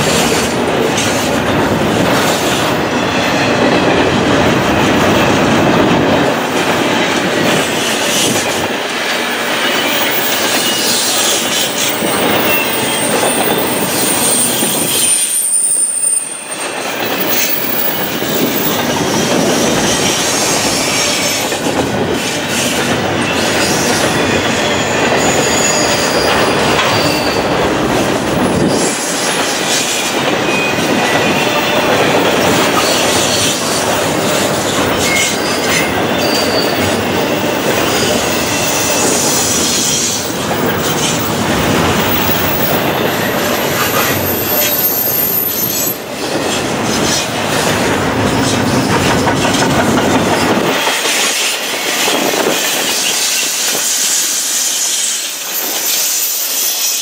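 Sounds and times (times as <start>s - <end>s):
train wheels on rails: 0.0s - 57.0s
wheel squeals: 9.4s - 21.6s, 22.2s - 27.7s, 28.4s - 47.3s, 48.3s - 57.0s.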